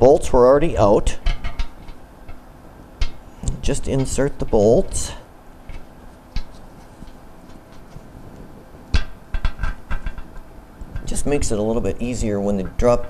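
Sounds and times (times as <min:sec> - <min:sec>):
bolts clinking against metal tank: 0:01.1 - 0:02.4, 0:03.0 - 0:04.9.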